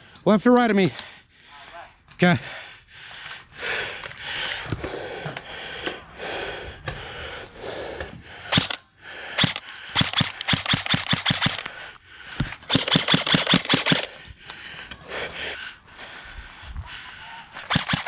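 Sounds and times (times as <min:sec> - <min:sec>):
airsoft rifle firing: 0:08.5 - 0:08.8, 0:09.4 - 0:11.7, 0:12.7 - 0:14.1, 0:17.6 - 0:18.0.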